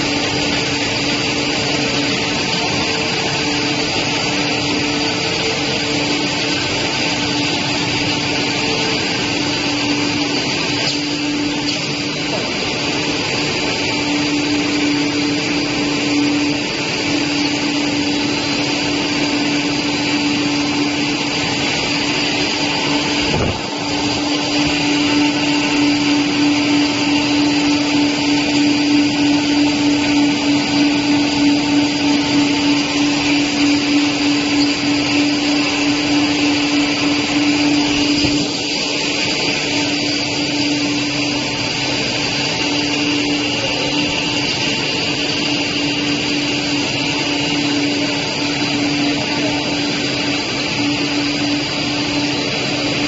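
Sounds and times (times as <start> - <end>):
loud machine hum: 0.0 - 53.0.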